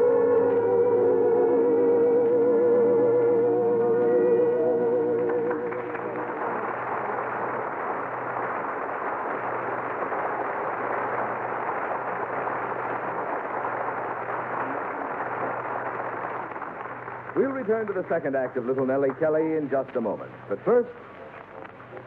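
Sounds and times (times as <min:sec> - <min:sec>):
low hum: 0:00.0 - 0:09.8
audience applauding: 0:00.1 - 0:19.7.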